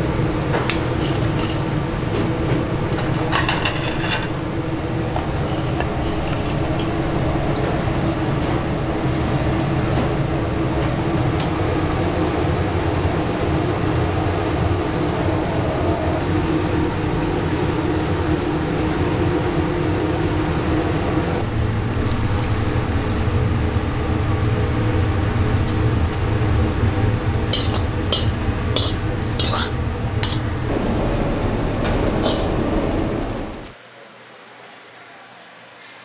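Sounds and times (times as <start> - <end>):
kitchen equipment roar: 0.0 - 33.8
metal utensils clinking: 27.6 - 30.5.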